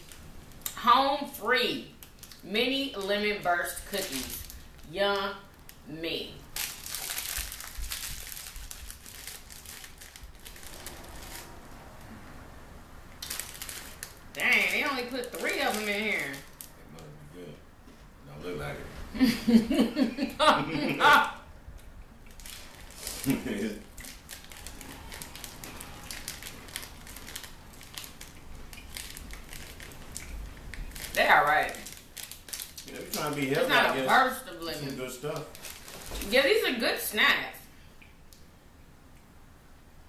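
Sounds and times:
plastic snack bag crinkling: 0.0s - 0.8s, 2.0s - 2.4s, 3.8s - 5.8s, 6.4s - 11.6s, 13.2s - 16.8s, 22.3s - 34.2s, 34.8s - 36.5s
crunchy snack being chewed: 22.2s - 33.6s.

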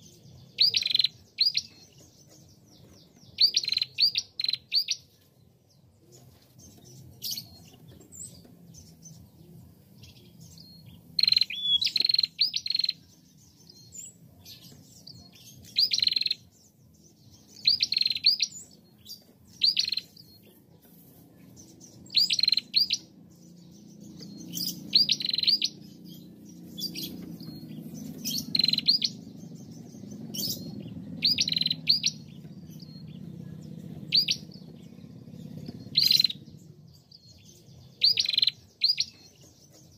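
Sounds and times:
faint low rumble: 23.0s - 38.0s
bird calling in sharp bursts: 24.6s - 25.8s, 31.2s - 32.2s.

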